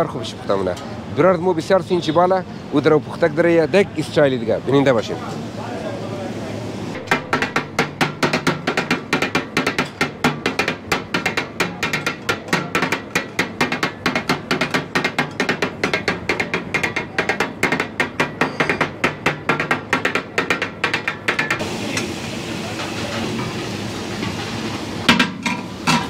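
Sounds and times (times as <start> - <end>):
steel spatulas clattering on griddle: 7.0 - 22.1, 25.1 - 26.0.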